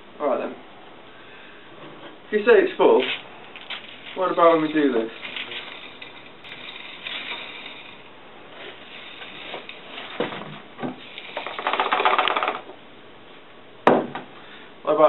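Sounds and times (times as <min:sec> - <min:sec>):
pebbles clattering onto golf balls: 0:02.9 - 0:12.8
pebbles clicking as they settle: 0:03.0 - 0:10.2, 0:11.0 - 0:12.7
jar of pebbles rattling: 0:03.0 - 0:12.7.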